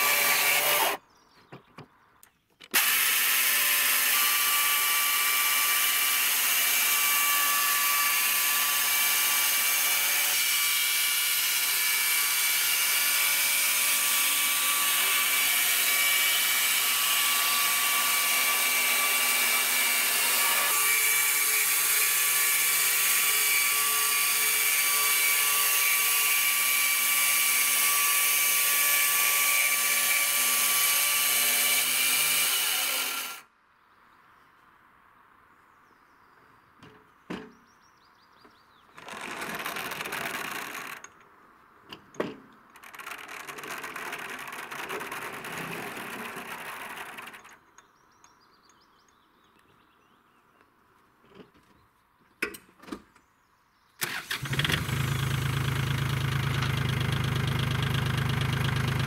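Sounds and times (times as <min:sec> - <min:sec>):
electric chainsaw cutting wood: 0:00.0 - 0:01.0, 0:02.7 - 0:33.5, 0:39.0 - 0:41.1, 0:42.7 - 0:47.6, 0:54.0 - 0:59.0.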